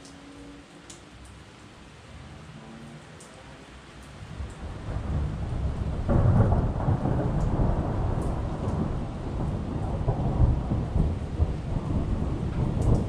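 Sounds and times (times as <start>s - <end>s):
rain on concrete: 0.0s - 13.0s
thunder rumbling: 4.4s - 13.0s.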